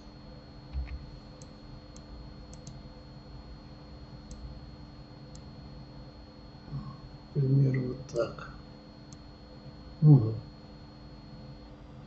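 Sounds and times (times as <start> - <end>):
low electrical hum: 0.0 - 12.0
computer mouse and keyboard clicks: 0.7 - 2.8.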